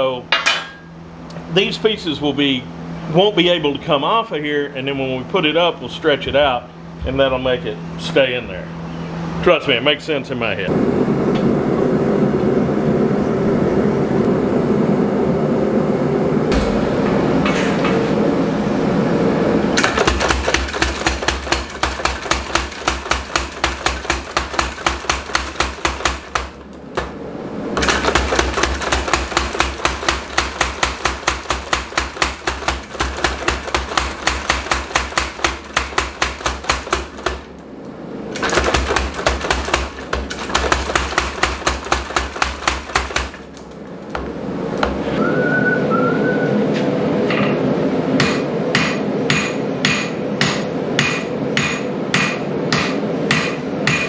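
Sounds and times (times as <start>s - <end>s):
power hammer striking metal: 16.5s - 18.2s, 19.8s - 27.2s, 27.8s - 37.5s, 38.4s - 43.5s, 48.2s - 54.0s.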